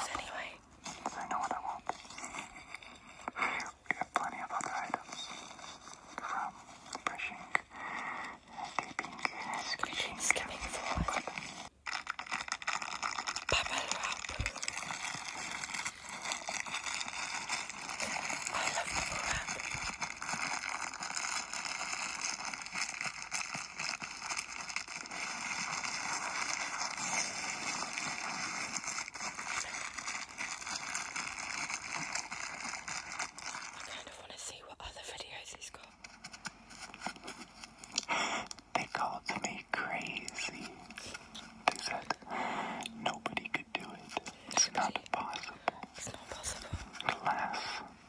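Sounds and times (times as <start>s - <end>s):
bubble wrap crackling: 0.0s - 48.0s.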